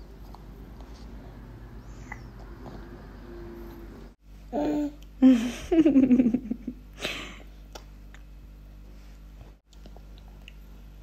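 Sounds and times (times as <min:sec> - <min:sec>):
baby babbling: 0:04.5 - 0:05.0
faint mouth clicks chewing: 0:09.7 - 0:10.8.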